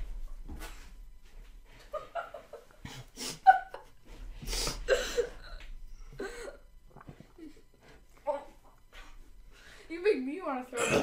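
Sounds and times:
boy gagging and retching: 10.8s - 11.0s.

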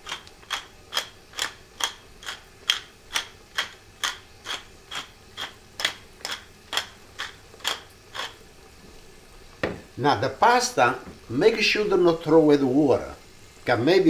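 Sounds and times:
pepper mill grinding: 0.0s - 8.5s.

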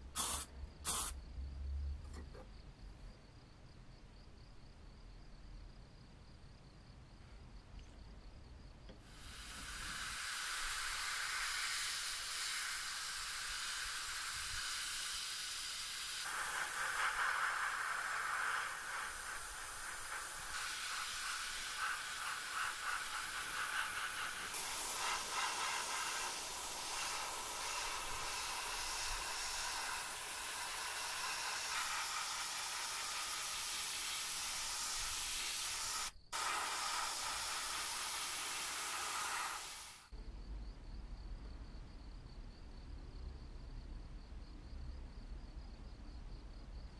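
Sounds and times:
airbrush spraying hiss: 0.0s - 1.3s, 9.0s - 40.2s.

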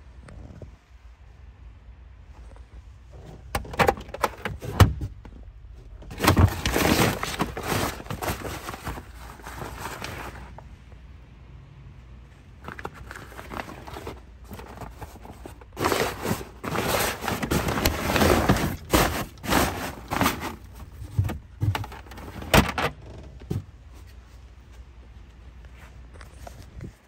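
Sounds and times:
plastic panels scraping: 3.1s - 10.7s, 12.6s - 24.0s
nylon cover crinkling: 6.1s - 10.6s, 12.6s - 22.8s.

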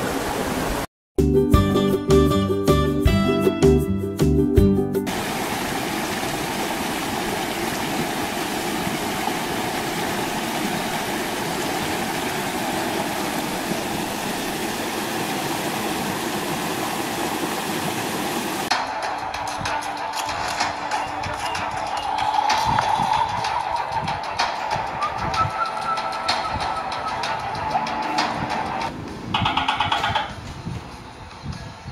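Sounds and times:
water rushing over rocks: 0.0s - 0.9s, 5.1s - 18.7s
music: 1.2s - 5.1s, 18.7s - 31.9s
intro music: 18.7s - 29.2s.

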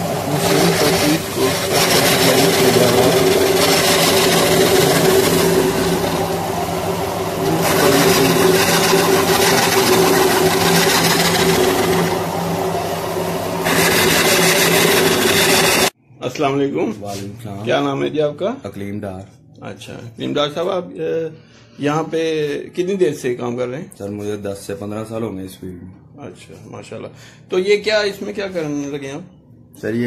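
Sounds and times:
dough machine motor humming: 0.0s - 16.0s.

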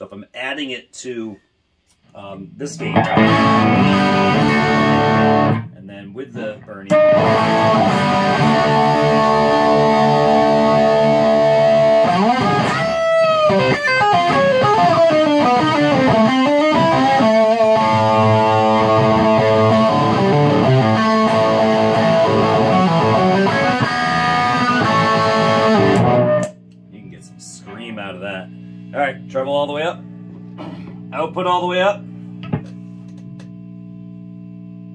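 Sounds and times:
overdriven electric guitar: 2.8s - 5.7s, 6.4s - 26.6s.

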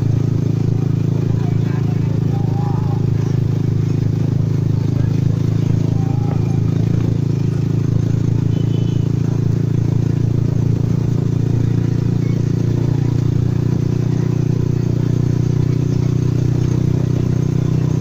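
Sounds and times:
small motorcycle engine droning: 0.0s - 18.0s.

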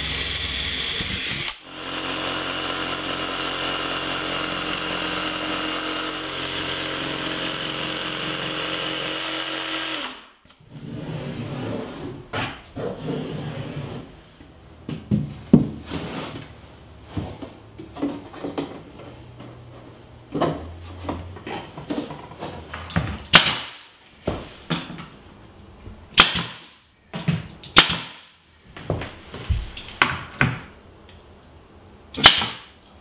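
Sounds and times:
nail gun shots: 23.3s - 23.9s, 26.2s - 26.8s, 27.7s - 28.3s, 32.2s - 32.8s.

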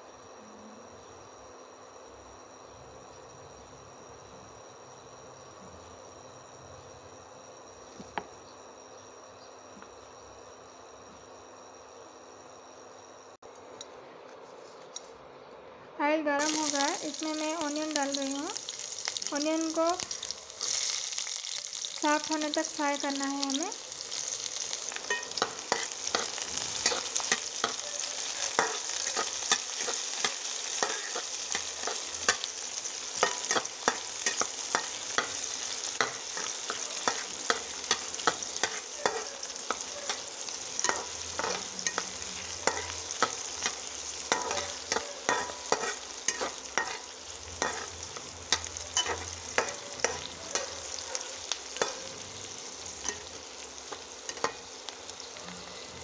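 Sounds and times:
onions sizzling in oil: 16.2s - 56.0s
spatula scraping a pan: 40.8s - 48.0s.

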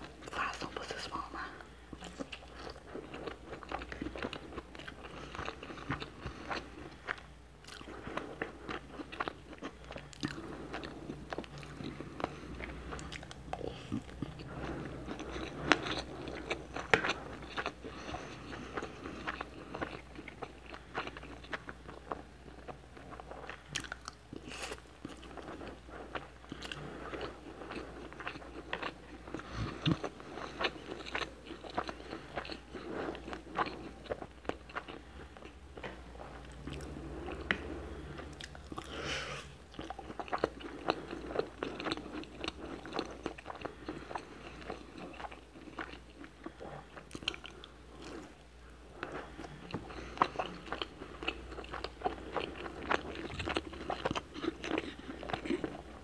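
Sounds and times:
person chewing food: 0.0s - 56.0s.

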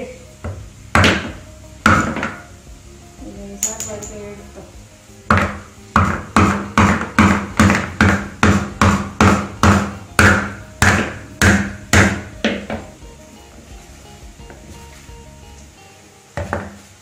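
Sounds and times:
rolling pin knocking on coconut shell: 0.4s - 2.5s, 5.3s - 12.9s.

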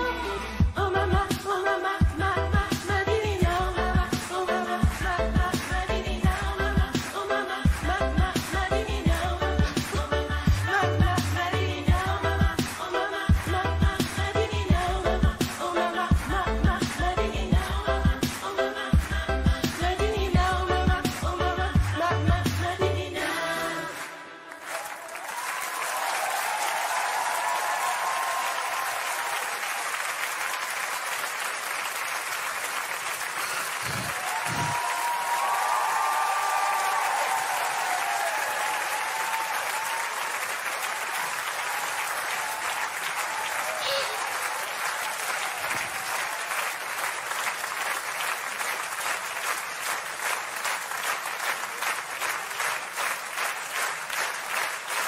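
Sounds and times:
rhythmic clapping: 1.3s - 55.0s
audience applauding and cheering: 23.3s - 55.0s
shouts: 34.1s - 40.4s, 41.6s - 46.5s.

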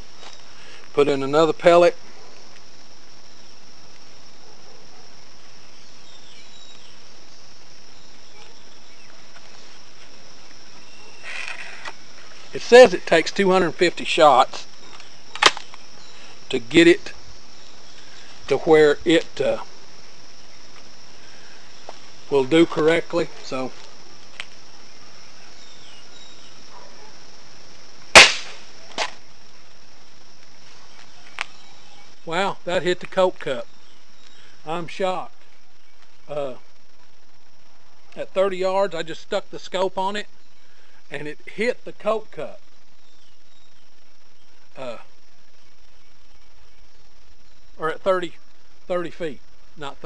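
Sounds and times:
crickets trilling: 0.0s - 50.0s
air rifle crack: 15.0s - 15.8s, 28.1s - 29.2s.

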